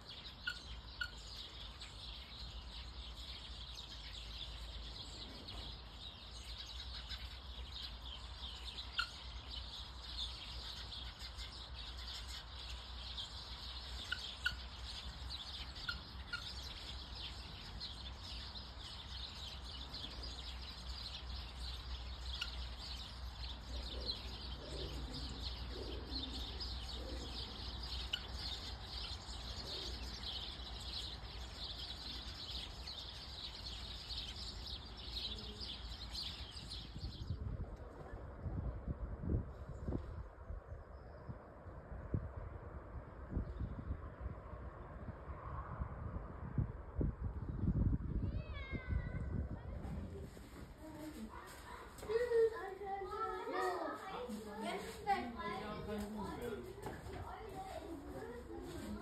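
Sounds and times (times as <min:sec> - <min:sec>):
small birds chirping: 0:00.0 - 0:41.5, 0:47.2 - 0:59.0
low soft bird calls: 0:00.0 - 0:42.4
steady low rumble: 0:36.8 - 0:48.4.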